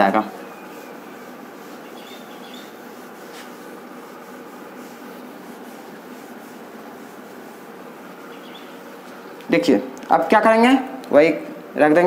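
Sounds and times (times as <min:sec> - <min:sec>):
eraser rubbing on whiteboard: 0:00.0 - 0:09.3.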